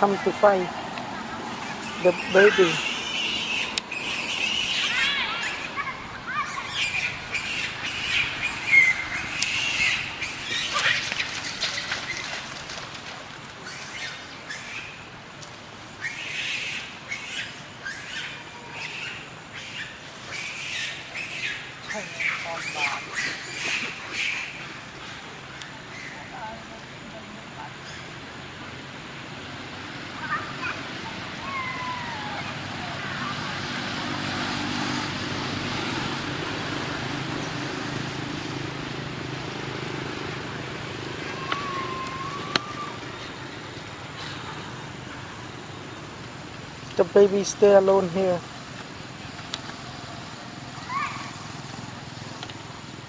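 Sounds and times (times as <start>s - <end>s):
vehicle engine humming: 0.0s - 16.0s, 16.8s - 53.0s
baby monkey squeaky calls: 1.7s - 12.2s, 16.0s - 24.6s, 41.3s - 43.0s.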